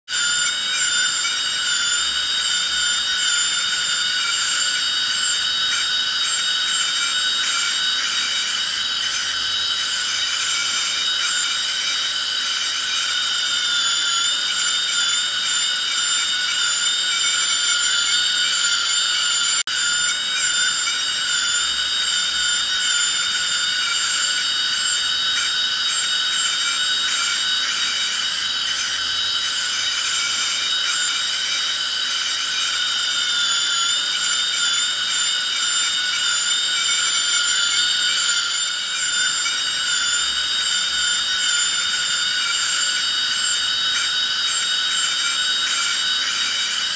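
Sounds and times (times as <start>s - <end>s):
dental drill whine: 0.1s - 46.9s.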